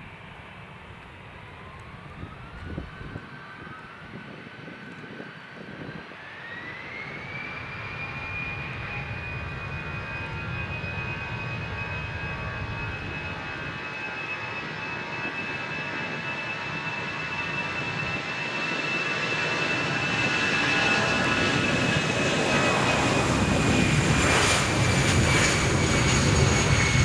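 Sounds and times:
rising engine whine: 0.0s - 27.0s
jet engines spooling up: 0.6s - 27.0s.

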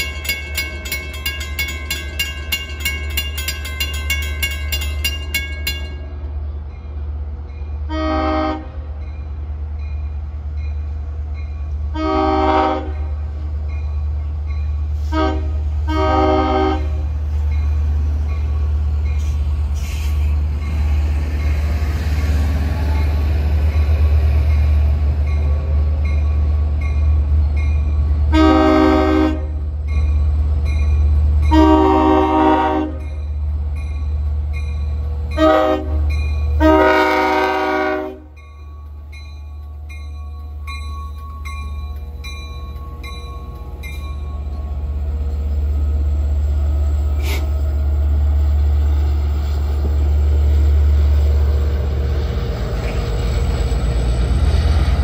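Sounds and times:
crossing bell ringing: 0.0s - 6.9s, 20.6s - 45.7s
locomotive horn: 7.8s - 8.8s, 11.9s - 13.2s, 15.0s - 17.1s, 28.3s - 29.6s, 31.5s - 33.0s, 35.3s - 38.4s.

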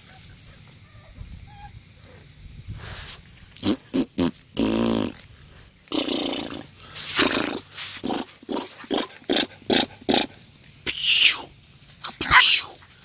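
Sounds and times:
puppies yipping: 0.0s - 2.3s, 10.9s - 12.8s
puppy whining: 0.0s - 2.3s
puppies growling: 3.6s - 10.5s.

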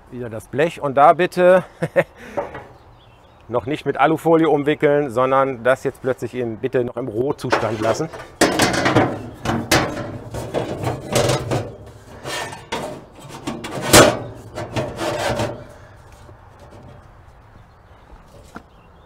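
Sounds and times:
metal clunk: 2.3s - 2.8s, 7.4s - 15.9s, 16.6s - 17.1s
steel plate scraping sheet metal: 7.5s - 16.0s.

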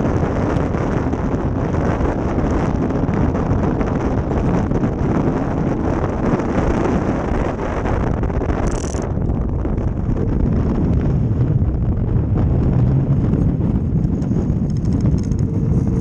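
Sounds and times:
runners rumbling on ice: 0.0s - 16.0s
wind buffeting microphone: 0.0s - 16.0s.

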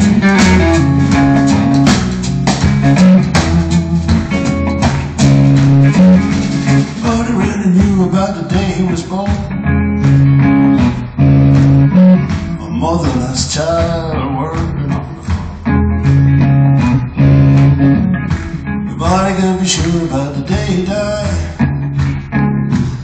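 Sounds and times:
guitar and bass chords: 0.0s - 23.0s
person singing: 6.9s - 9.6s, 12.6s - 15.6s, 18.9s - 21.7s.

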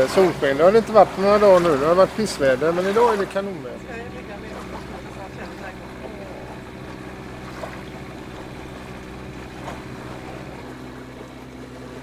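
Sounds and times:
boat engine running: 0.0s - 12.0s
small water splashes: 0.0s - 12.0s
water swishing past hull: 0.0s - 12.0s.

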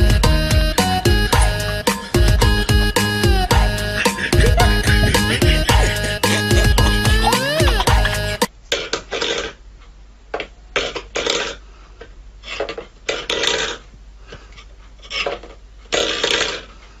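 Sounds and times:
metal bowl scraping on wooden floor: 15.0s - 16.6s.

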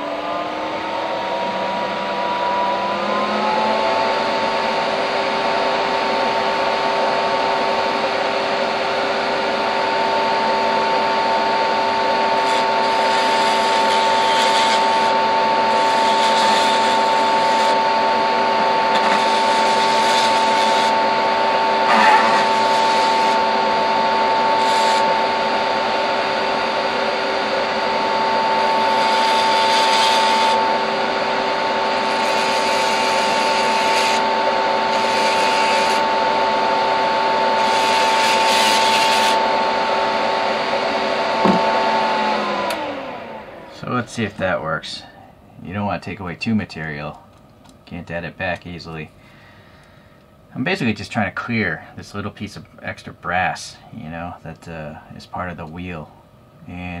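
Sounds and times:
dust extractor fan running: 0.0s - 57.0s
rotary tool motor whine: 10.2s - 43.6s
bit grinding metal: 12.2s - 18.0s, 18.6s - 21.0s, 21.6s - 25.4s, 28.2s - 30.8s, 31.8s - 36.1s.

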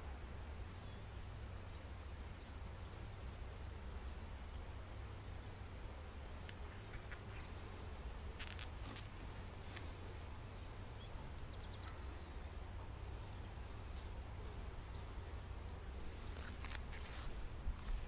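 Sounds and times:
honey bees buzzing: 0.0s - 18.0s
bird chirping: 10.0s - 13.5s.

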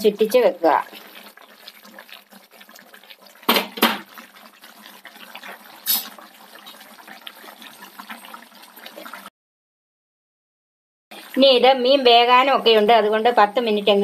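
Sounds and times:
curry bubbling and sputtering: 0.0s - 9.3s, 11.1s - 14.0s
clay pot knocking on grate: 3.5s - 4.1s.

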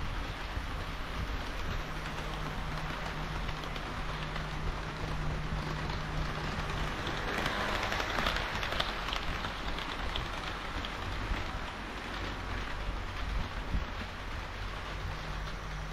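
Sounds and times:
model train wheels rattling: 0.0s - 15.9s
clatter of clicks: 1.4s - 14.1s.

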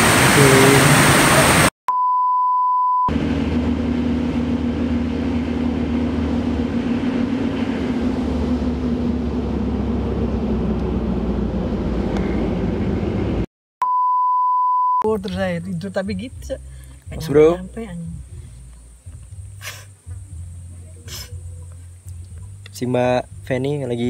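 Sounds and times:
truck engine drone: 0.0s - 1.7s, 3.0s - 13.5s, 15.1s - 24.0s
steady beep tone: 1.9s - 3.1s, 13.8s - 15.1s
wind and road noise: 3.1s - 13.5s, 15.2s - 24.0s.

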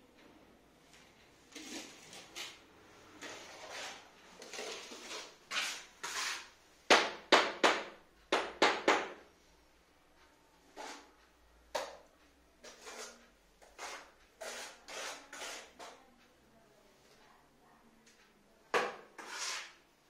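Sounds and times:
tile knocking and scraping: 3.2s - 9.2s, 11.7s - 16.0s, 18.7s - 19.8s
sharp taps on tile: 6.9s - 9.2s.

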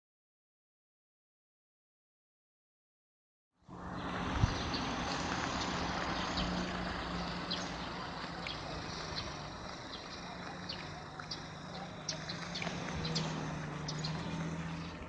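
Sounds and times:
outdoor background noise: 3.6s - 15.0s
vehicle engine idling hum: 3.7s - 15.0s.

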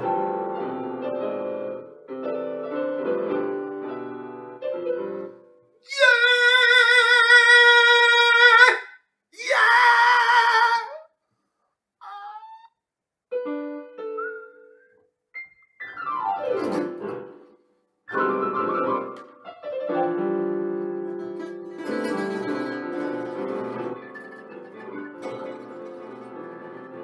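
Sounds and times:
electronic keyboard piano notes: 18.1s - 27.0s.

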